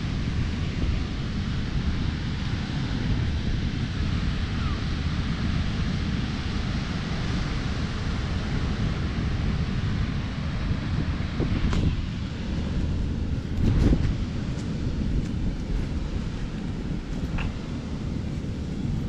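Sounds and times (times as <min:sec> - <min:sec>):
surf hissing on beach: 0:00.0 - 0:19.0
wind buffeting microphone: 0:00.0 - 0:19.0.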